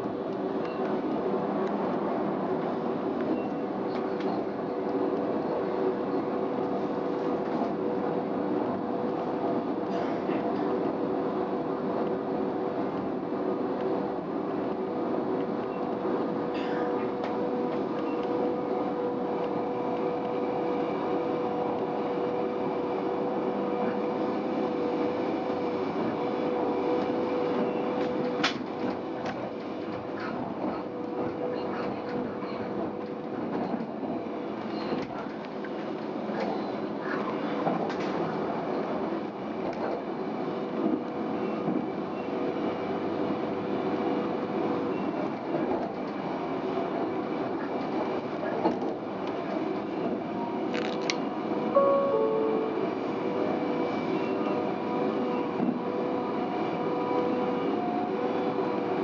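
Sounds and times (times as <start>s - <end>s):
railcar running hum: 0.0s - 59.0s.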